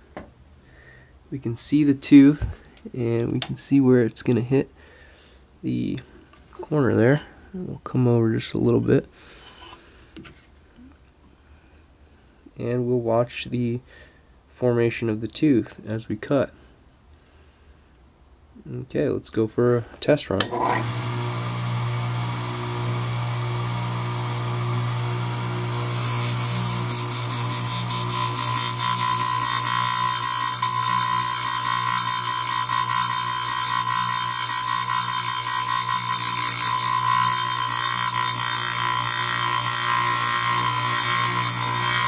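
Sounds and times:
grinder motor humming: 20.5 - 42.0
high-pitched grinding screech: 20.5 - 42.0.

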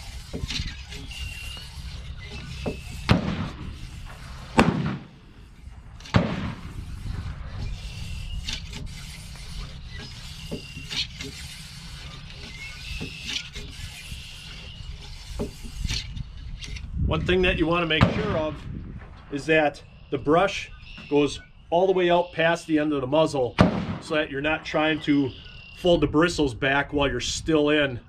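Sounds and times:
cleaning rod rubbing in barrel: 0.0 - 17.9
gunshots with rumbling tail: 3.1 - 3.6, 4.5 - 5.2, 5.8 - 7.6, 18.0 - 19.3, 23.6 - 24.1.

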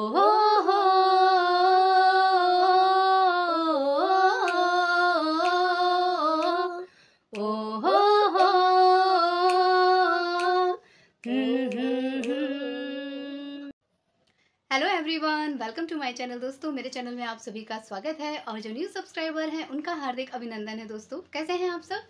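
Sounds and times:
woman and boy singing: 0.0 - 13.8.

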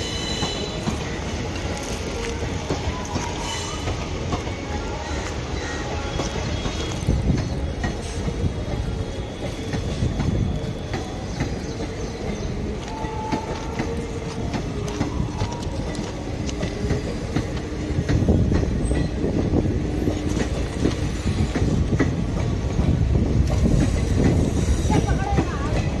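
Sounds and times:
train wheels clattering over rail joints: 6.1 - 26.0.

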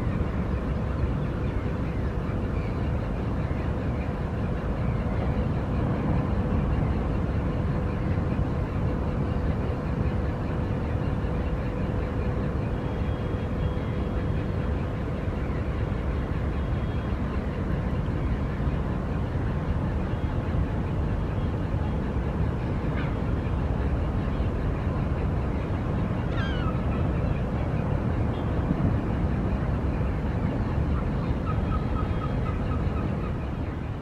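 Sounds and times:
faint constant hum: 0.0 - 34.0
low rumbling noise: 0.0 - 34.0.

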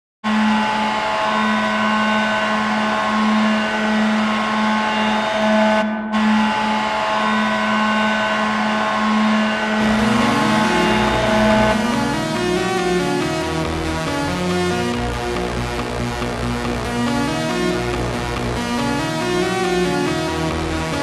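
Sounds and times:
goal horn blast: 9.8 - 13.5.

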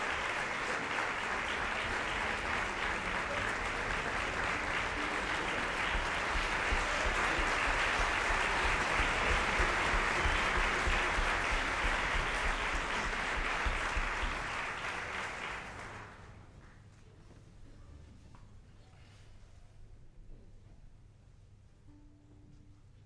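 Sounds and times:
audience applauding: 0.0 - 16.5.

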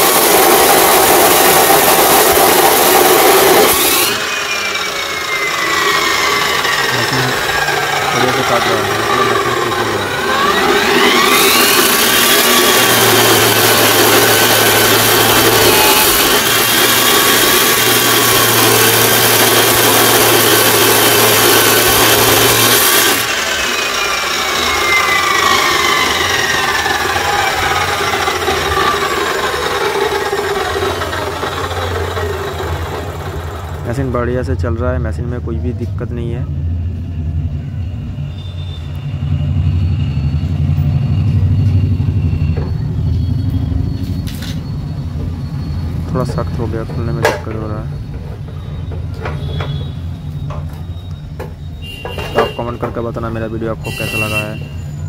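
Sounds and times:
chop saw grinding through metal: 0.0 - 34.2
saw motor whine: 0.0 - 34.5, 36.9 - 55.0.

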